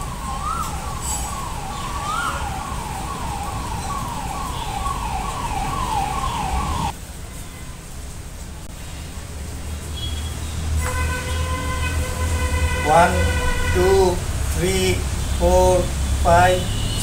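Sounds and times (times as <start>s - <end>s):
siren-like tone sweeping down: 0.0s - 6.9s.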